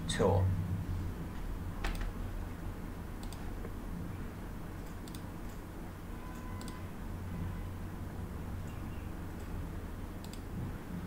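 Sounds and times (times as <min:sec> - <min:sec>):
steady low hum: 0:00.0 - 0:11.0
computer mouse clicks: 0:03.2 - 0:03.4, 0:04.8 - 0:05.6, 0:06.3 - 0:06.8, 0:10.2 - 0:10.5.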